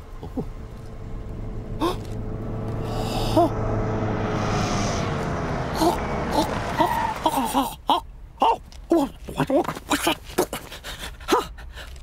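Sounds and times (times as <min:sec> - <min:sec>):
car engine hum: 0:00.0 - 0:08.4.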